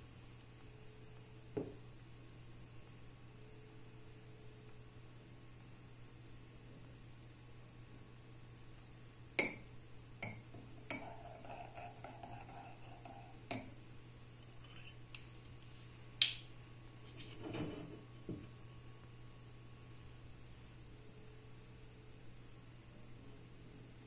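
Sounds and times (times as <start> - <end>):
scraping on counter: 17.0 - 18.1.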